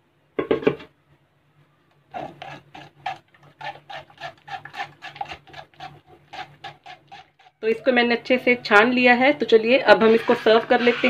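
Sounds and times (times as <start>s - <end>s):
spoon scraping metal strainer: 2.1s - 7.6s, 9.9s - 11.0s.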